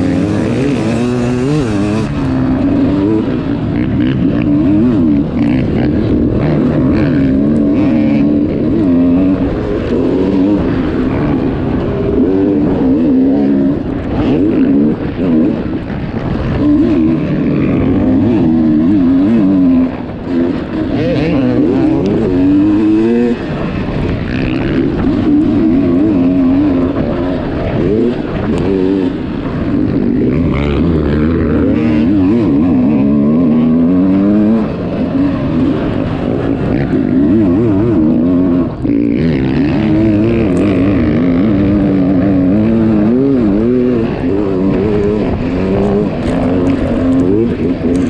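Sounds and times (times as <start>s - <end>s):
dirt bike engine revving: 0.0s - 48.0s.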